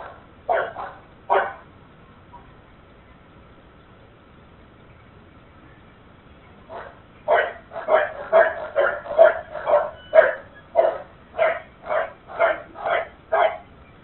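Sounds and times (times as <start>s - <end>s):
dog barking: 0.0s - 1.6s, 6.7s - 13.7s.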